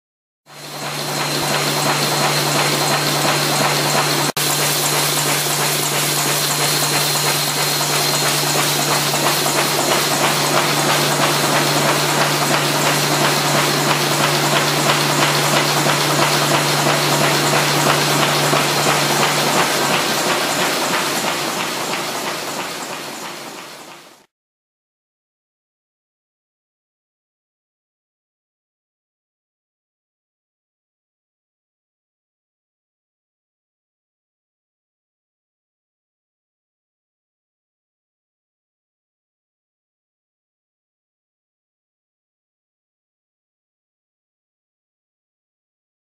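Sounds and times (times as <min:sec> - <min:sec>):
folding machine running: 0:00.5 - 0:24.3.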